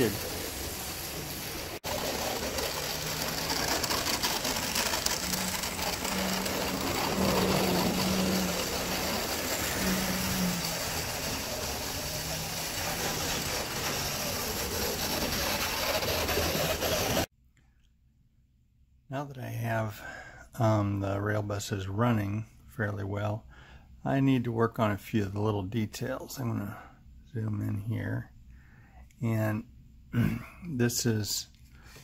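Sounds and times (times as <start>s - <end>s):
gears and wheels rattling on rails: 0.0s - 17.3s
small electric motor humming: 0.0s - 17.3s.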